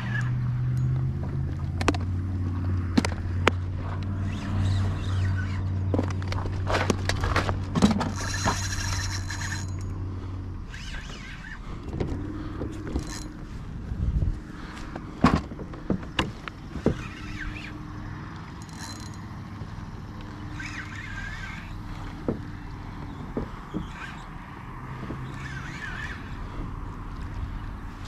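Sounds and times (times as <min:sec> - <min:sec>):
low engine hum: 0:00.0 - 0:28.0
gear clicking in plastic kayak: 0:18.3 - 0:19.2.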